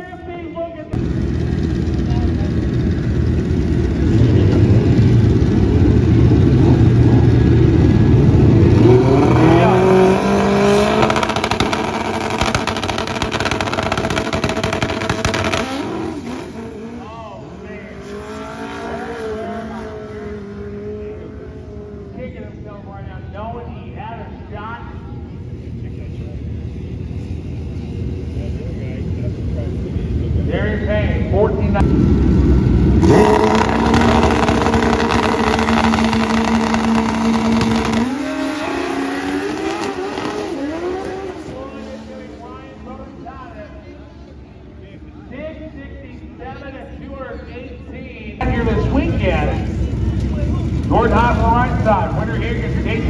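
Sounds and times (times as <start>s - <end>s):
motorcycle engine at high revs: 1.0s - 17.1s, 17.7s - 22.2s, 32.7s - 42.3s
rapid engine crackle: 11.0s - 16.4s, 33.0s - 38.2s.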